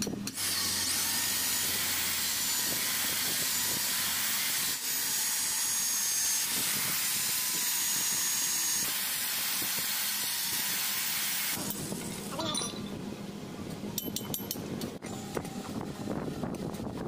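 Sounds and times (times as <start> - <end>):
electric drill boring into wood: 0.3 - 11.8.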